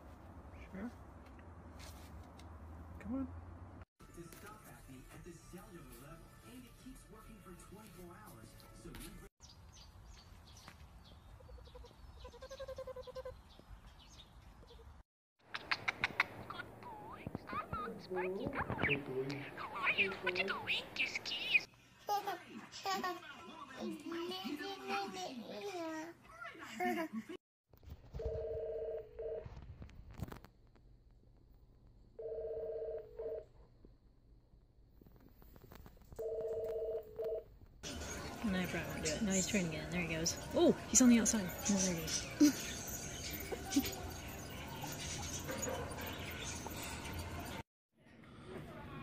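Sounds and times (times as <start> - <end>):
goat bleating: 12.2 - 13.3
electronic telephone ringing: 28.2 - 29.4, 32.2 - 33.4, 36.2 - 37.4.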